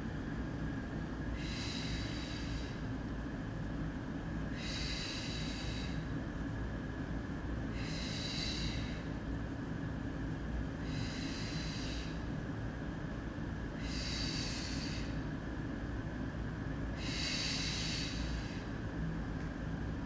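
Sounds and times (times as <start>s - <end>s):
steady low hum: 0.0s - 20.0s
person breathing hiss: 1.4s - 2.9s, 4.5s - 6.1s, 7.7s - 9.2s, 10.8s - 12.3s, 13.8s - 15.2s, 16.9s - 18.7s.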